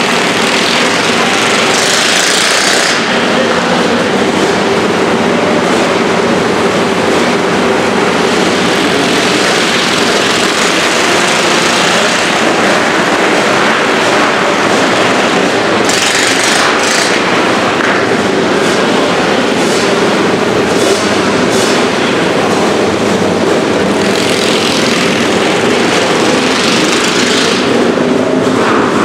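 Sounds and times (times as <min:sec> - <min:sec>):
mini bike engines racing: 0:00.0 - 0:04.0, 0:07.0 - 0:17.8, 0:23.4 - 0:28.9.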